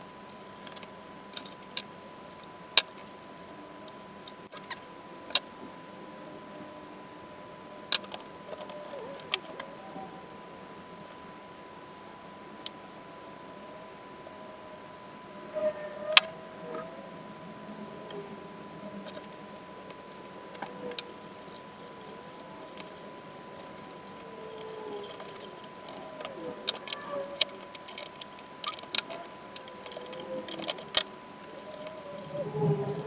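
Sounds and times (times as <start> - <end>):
small parts clicking and clinking: 7.9 - 10.1, 19.0 - 19.6, 20.5 - 33.0
faint high tone: 15.3 - 17.2, 24.1 - 27.8.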